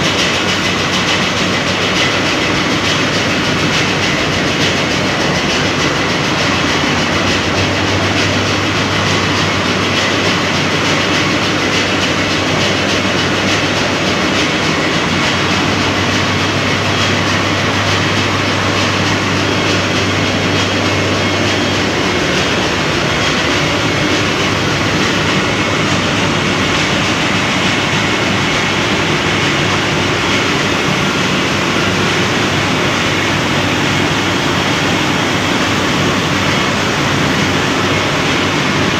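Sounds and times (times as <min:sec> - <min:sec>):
engine room machinery din: 0:00.0 - 0:38.9.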